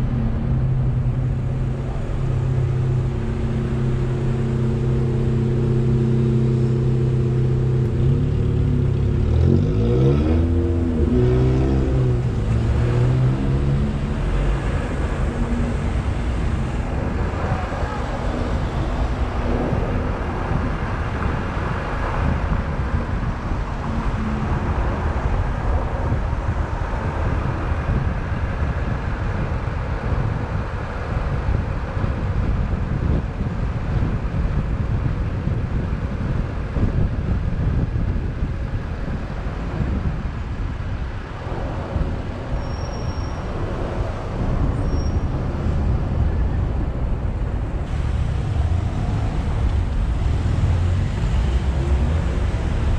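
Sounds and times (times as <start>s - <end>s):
car road noise rumble: 0.0s - 52.9s.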